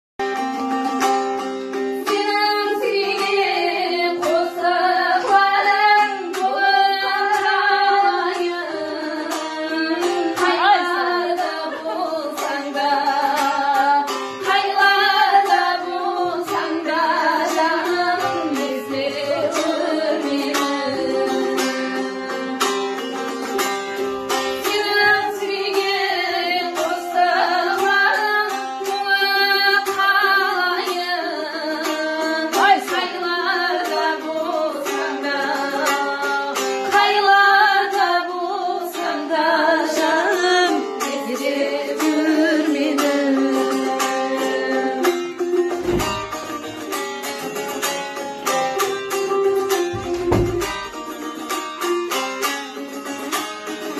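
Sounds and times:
plucked long-necked lute: 0.2 - 53.9
woman singing folk song: 0.3 - 53.9.

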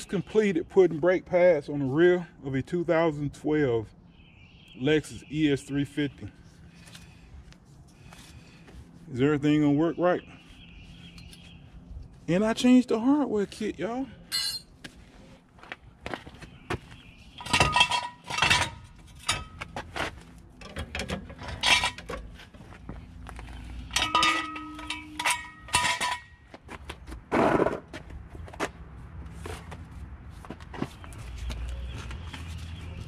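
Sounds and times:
metal tools clinking: 14.3 - 14.7, 17.4 - 19.7, 20.6 - 22.3, 23.4 - 26.5
metal scraping: 17.3 - 22.6, 23.3 - 26.5.

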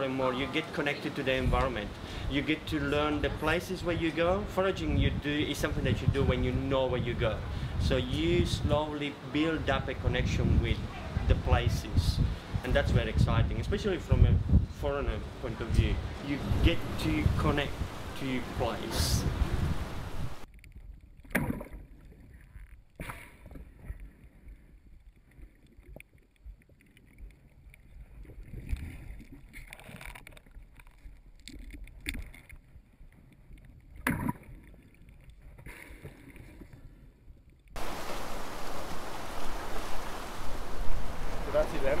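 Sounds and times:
muffled underwater water movement: 14.3 - 42.0
surf breaking on rocks: 37.8 - 42.0.

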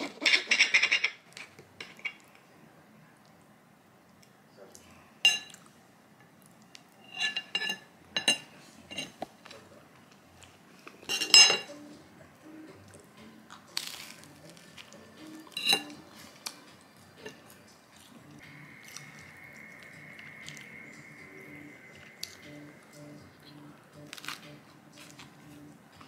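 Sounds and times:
cutlery clinking on ceramic plate: 0.2 - 1.2, 1.8 - 2.2, 5.3 - 5.6, 7.1 - 9.2, 11.1 - 11.8, 15.5 - 16.0.

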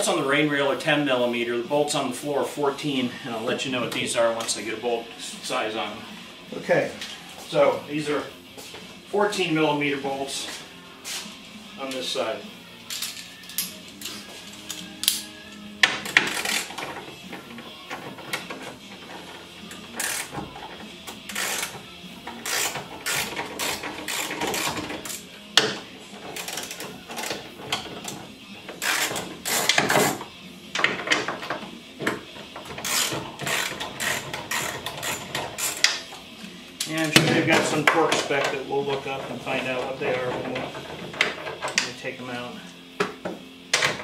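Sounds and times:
socket ratchet clicking: 22.3 - 25.3, 28.8 - 30.2, 32.8 - 36.0.

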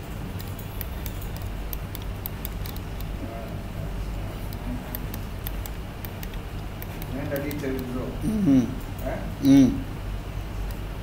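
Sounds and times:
steady low hum: 0.0 - 11.0
computer mouse clicks: 0.4 - 3.6, 4.4 - 8.0.

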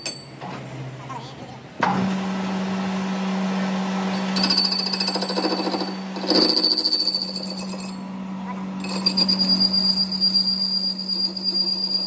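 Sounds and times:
cutting tool rattling and ringing: 4.3 - 8.1, 8.8 - 12.0.

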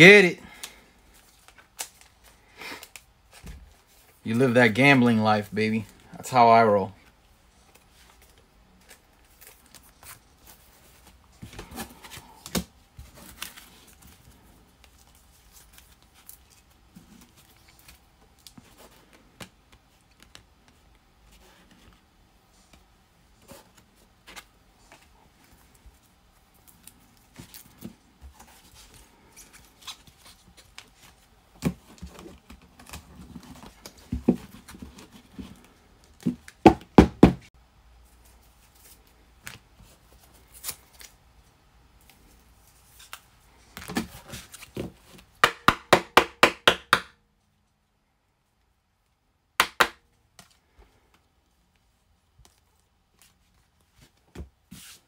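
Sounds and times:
plastic card sleeves rustling: 7.6 - 22.0.

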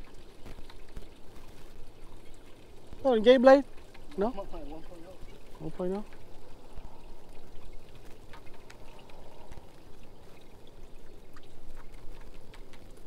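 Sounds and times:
faint small clicks: 11.4 - 13.0.

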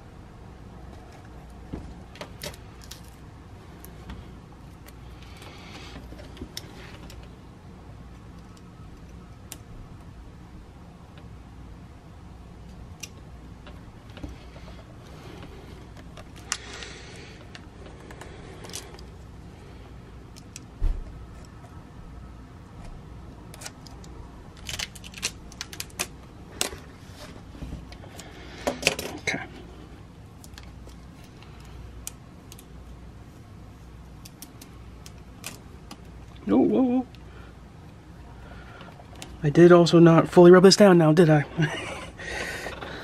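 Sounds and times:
plastic film crinkling and peeling: 23.5 - 28.2.

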